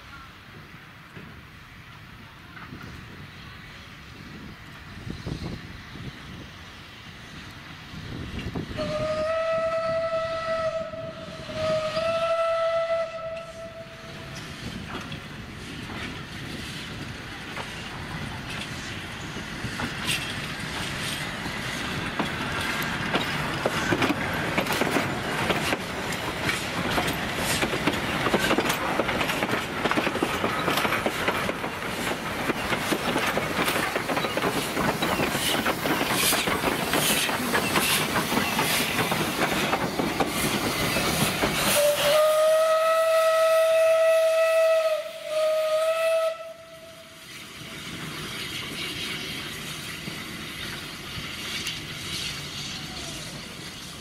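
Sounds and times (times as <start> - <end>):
steam whistle: 8.7 - 14.4, 41.6 - 47.3
train wheels clattering over rails: 13.3 - 42.6.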